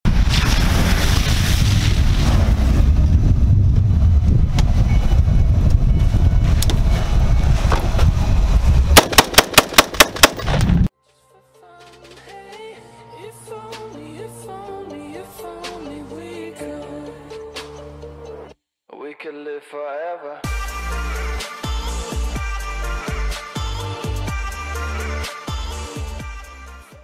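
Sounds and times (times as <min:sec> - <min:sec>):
low rumble: 0:00.1 - 0:09.0
rapid rifle shots: 0:09.0 - 0:10.4.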